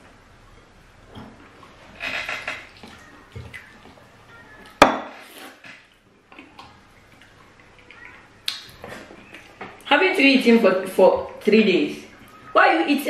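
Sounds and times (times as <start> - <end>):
wet mouth clicks: 6.3 - 9.4
loud lip-smacking: 6.3 - 9.6.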